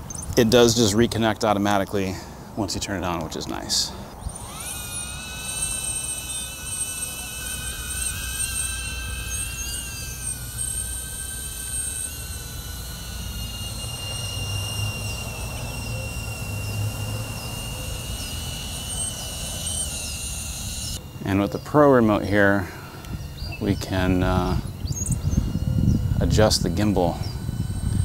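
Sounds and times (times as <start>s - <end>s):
drone propellers whining: 0.0s - 28.0s.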